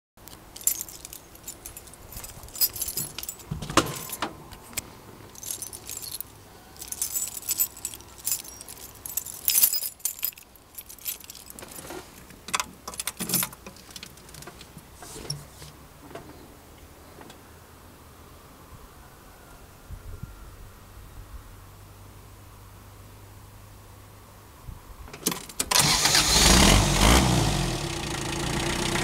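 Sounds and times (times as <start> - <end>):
keys jingling: 0.2 - 14.8.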